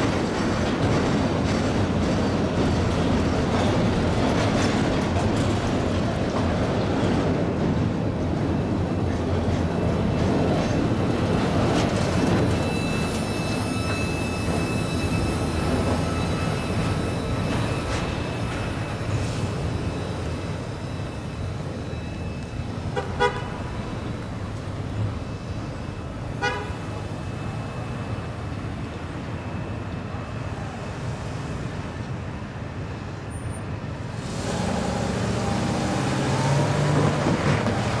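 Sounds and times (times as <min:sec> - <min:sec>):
freight train cars rumbling: 0:00.0 - 0:38.0
train horn toots: 0:22.9 - 0:23.7, 0:26.4 - 0:26.9.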